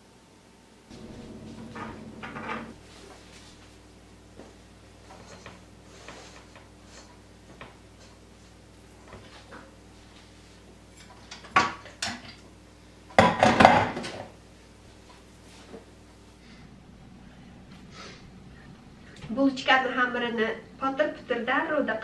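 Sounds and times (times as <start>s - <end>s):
faint steady hum: 0.0s - 13.4s, 14.1s - 22.0s
dishes and utensils clattering: 0.9s - 2.8s.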